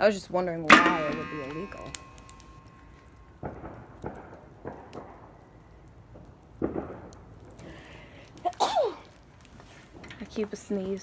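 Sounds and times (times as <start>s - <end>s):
person sneezing: 8.6s - 9.0s.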